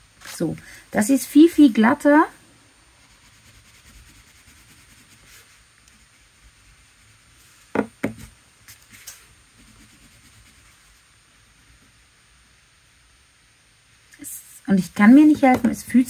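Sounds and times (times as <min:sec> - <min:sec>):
crayon knocking on desk: 0:07.7 - 0:08.3, 0:15.3 - 0:15.8.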